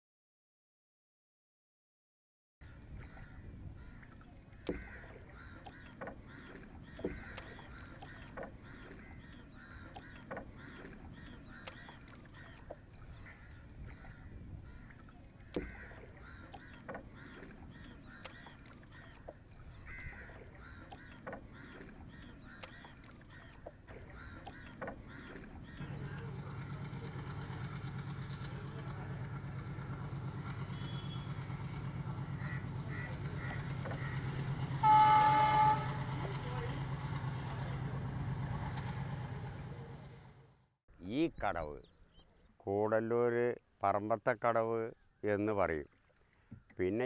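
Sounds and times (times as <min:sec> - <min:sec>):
birds calling: 0:02.6 - 0:29.2, 0:30.6 - 0:36.8, 0:40.9 - 0:47.0
low engine rumble: 0:02.6 - 0:41.9
wooden knocks on boat: 0:04.0 - 0:12.8, 0:13.8 - 0:26.1, 0:33.3 - 0:34.3.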